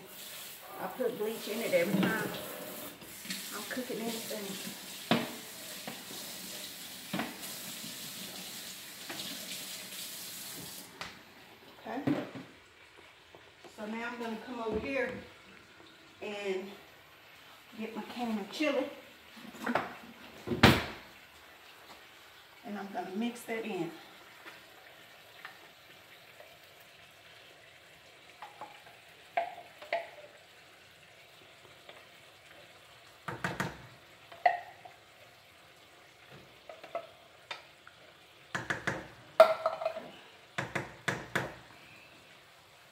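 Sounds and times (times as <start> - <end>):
faucet running into metal sink: 0.0 - 10.9
spoon knocking on can and pan: 29.4 - 30.2, 33.2 - 34.9, 38.5 - 41.6
bowl knocking against sink: 33.3 - 33.8, 38.5 - 40.0.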